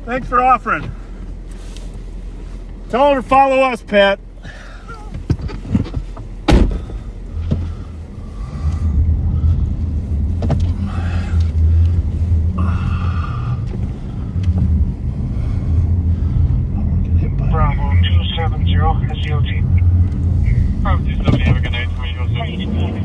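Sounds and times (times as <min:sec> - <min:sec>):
car engine and tyres rumbling: 0:00.0 - 0:23.0
sharp thump: 0:06.5 - 0:07.7.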